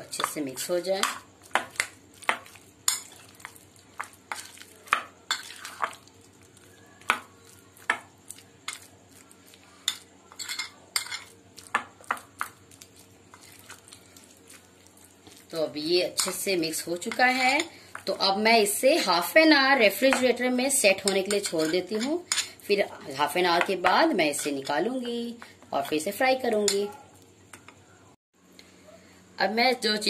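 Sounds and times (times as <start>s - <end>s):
spoon clinking and scraping glass: 9.8s - 11.4s.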